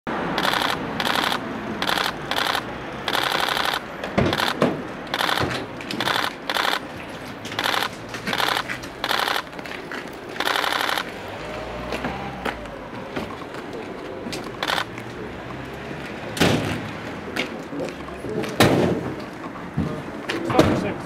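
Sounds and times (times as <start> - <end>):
camera shutters clicking rapidly: 0.3 - 6.9, 7.5 - 9.6, 10.4 - 11.1, 14.4 - 14.9.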